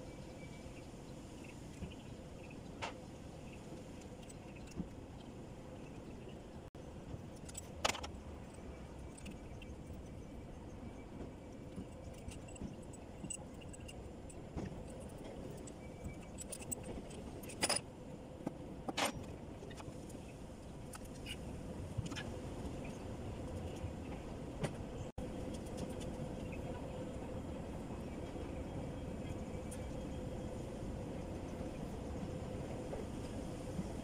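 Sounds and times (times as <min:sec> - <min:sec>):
metal engine parts clinking: 0:11.6 - 0:17.8.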